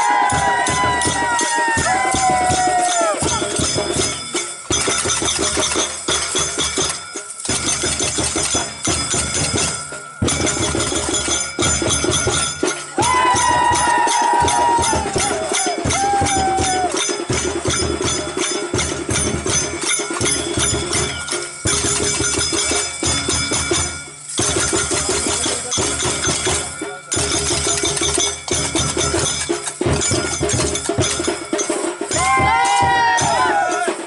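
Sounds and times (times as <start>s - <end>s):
jingling percussion: 0.0s - 34.0s
steady drum beat: 0.0s - 34.0s.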